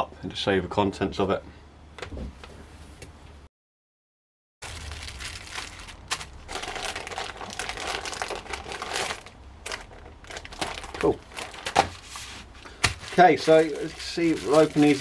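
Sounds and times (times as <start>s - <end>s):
plastic packaging crinkling: 4.6s - 15.0s.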